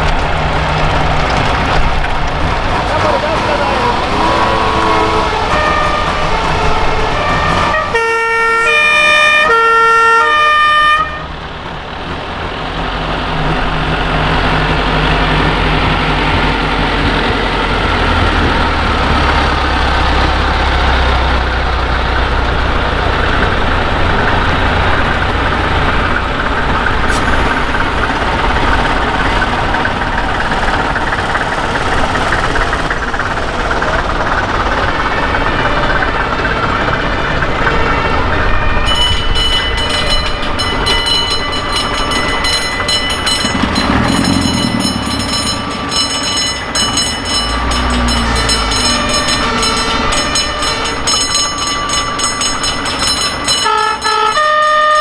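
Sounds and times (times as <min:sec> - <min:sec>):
fire truck engines passing: 0:00.0 - 0:55.0
two-tone siren horn: 0:04.1 - 0:11.3, 0:37.7 - 0:40.1, 0:46.7 - 0:52.0, 0:53.1 - 0:55.0.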